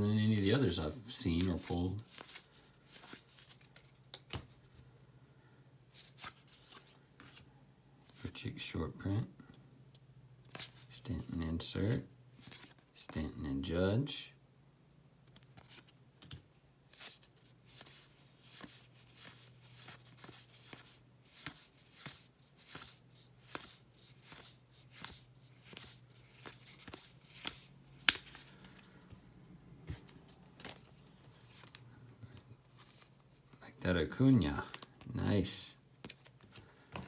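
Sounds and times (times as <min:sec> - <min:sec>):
cards swishing: 0:15.6 - 0:29.0.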